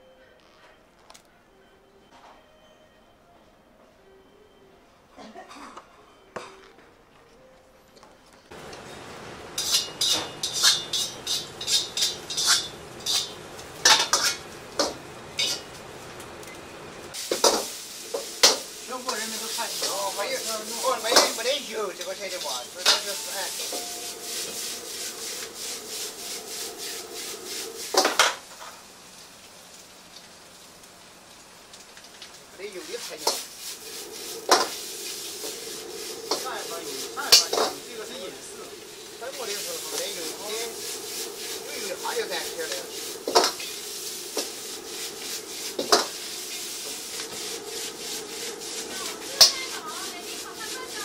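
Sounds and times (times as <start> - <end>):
food sizzling: 8.5 - 51.0
ladle scraping a wok: 8.7 - 15.8, 17.1 - 28.7, 32.9 - 51.0.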